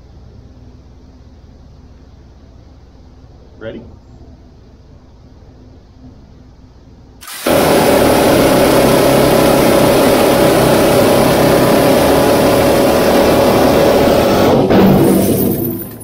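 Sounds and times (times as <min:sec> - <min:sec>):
minigun firing: 0:07.2 - 0:16.0.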